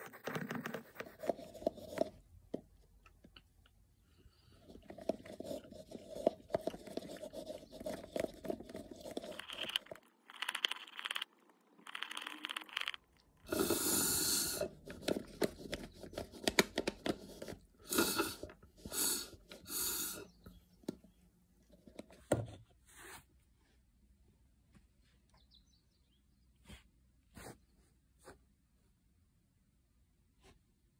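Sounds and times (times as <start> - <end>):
plastic cup crackling and scraping: 0.0 - 2.2, 4.6 - 19.8
slurping through a straw: 4.3 - 15.1, 17.8 - 20.4.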